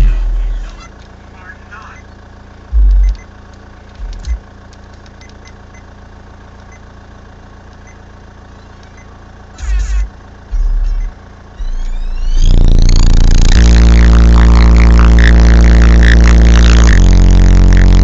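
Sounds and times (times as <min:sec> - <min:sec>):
deep bass bursts from subwoofers: 0:00.0 - 0:00.8, 0:02.6 - 0:04.6, 0:09.6 - 0:18.0
steady low rumble: 0:00.0 - 0:05.2, 0:09.0 - 0:18.0.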